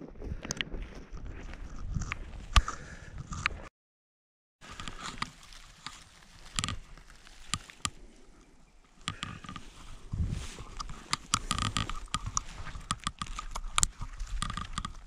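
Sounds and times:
rustling of moss and shrubs: 4.6 - 15.0
sharp snaps and clicks: 10.7 - 15.0.

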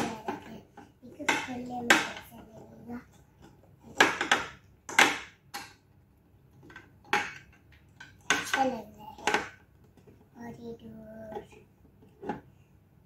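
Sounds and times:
toy pieces clacking and knocking: 0.0 - 2.5, 3.1 - 5.8, 6.5 - 10.2.

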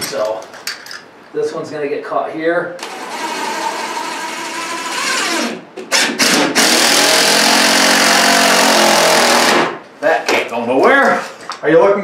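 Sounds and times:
power drill driving screws: 2.8 - 9.8.

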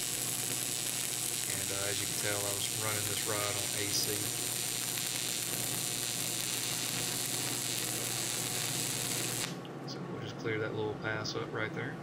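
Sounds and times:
welding arc crackle: 0.0 - 9.6
low electrical buzz: 0.0 - 12.0.

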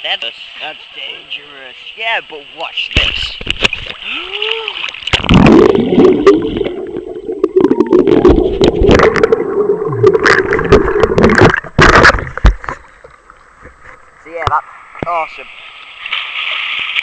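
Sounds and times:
underwater knocks and splashes: 2.9 - 4.0, 4.9 - 15.2.

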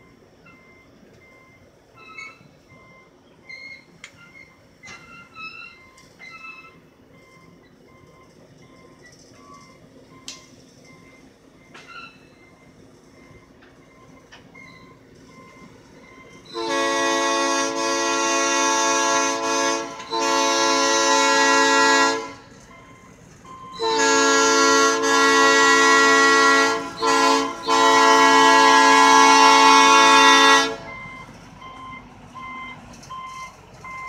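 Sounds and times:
rail cars rolling: 0.0 - 34.0
train air horn blasts: 16.4 - 22.6, 23.8 - 31.0.

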